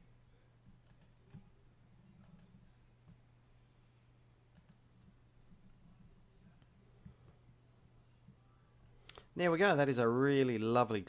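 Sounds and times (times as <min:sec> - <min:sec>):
low steady hum: 0:00.0 - 0:11.0
mouse and keyboard clicks: 0:00.8 - 0:01.5, 0:02.2 - 0:02.5, 0:04.5 - 0:04.8.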